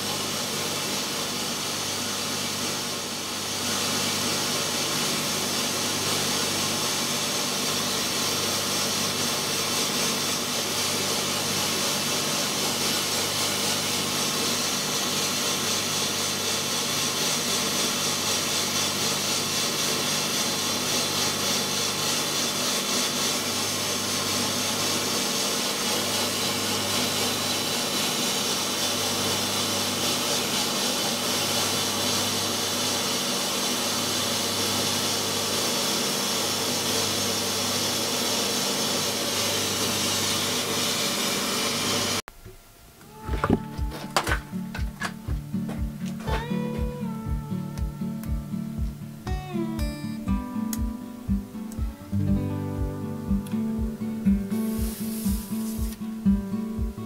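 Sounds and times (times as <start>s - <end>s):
sandblaster hissing on stone: 0.0s - 42.2s, 54.5s - 56.1s
low machine hum: 42.3s - 57.0s.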